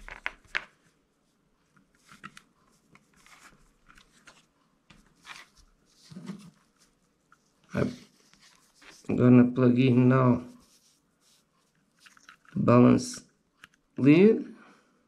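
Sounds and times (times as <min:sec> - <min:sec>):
quiet taps and rustles: 0:01.6 - 0:09.1.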